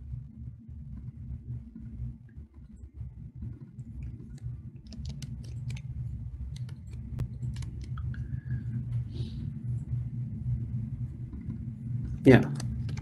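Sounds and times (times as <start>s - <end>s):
low steady hum: 0.0s - 13.0s
mouse and keyboard clicks: 3.6s - 5.9s, 6.5s - 8.1s.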